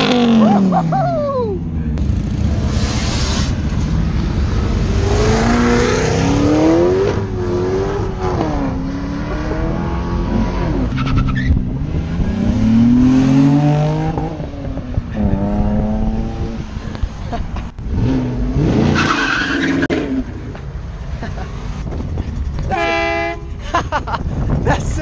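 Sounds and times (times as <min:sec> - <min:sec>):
car engine revving and accelerating: 0:02.0 - 0:17.1, 0:17.8 - 0:20.3.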